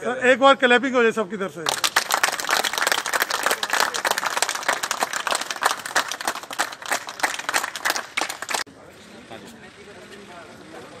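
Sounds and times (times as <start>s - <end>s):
people clapping: 1.6s - 8.7s.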